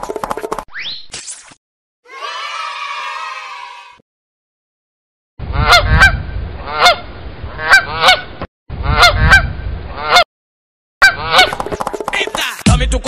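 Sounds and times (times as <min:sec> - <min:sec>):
goose honking: 0:05.5 - 0:07.0, 0:07.6 - 0:09.4, 0:10.0 - 0:10.3, 0:11.0 - 0:11.6.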